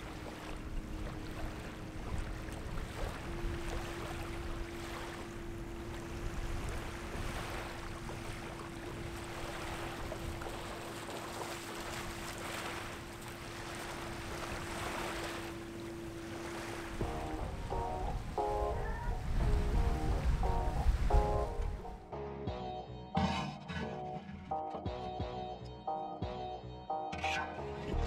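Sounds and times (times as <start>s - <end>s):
shallow water lapping: 0.0s - 22.0s
wind on microphone: 16.9s - 21.9s
music: 17.0s - 28.0s.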